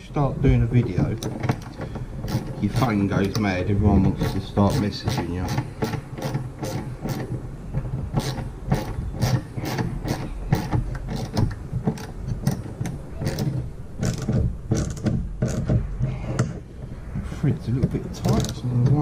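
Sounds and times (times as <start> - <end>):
socket ratchet clicking: 1.2 - 3.5, 4.2 - 7.4, 8.1 - 15.7.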